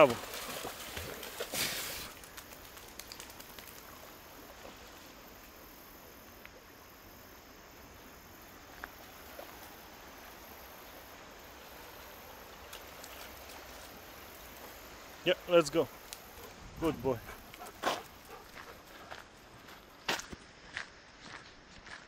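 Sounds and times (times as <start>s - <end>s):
rushing creek: 0.0s - 20.0s
small ticks: 2.2s - 4.1s, 12.6s - 14.7s, 15.9s - 16.6s.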